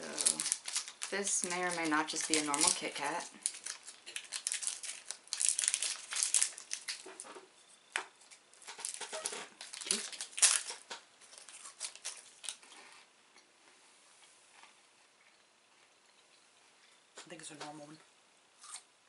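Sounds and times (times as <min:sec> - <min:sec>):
wrapper crinkling: 0:00.0 - 0:07.5, 0:08.2 - 0:12.8.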